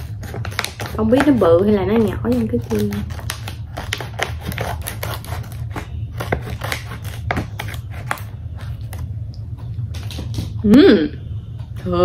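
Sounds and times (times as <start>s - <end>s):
plastic bag crinkling: 0.0s - 5.7s
scissors snipping plastic: 0.0s - 8.3s.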